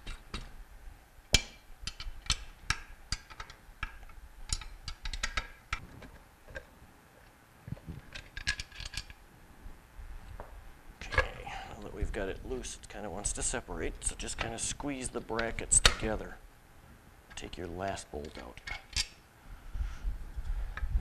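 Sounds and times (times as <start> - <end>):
wrench clicking on bolts: 1.4 - 5.6.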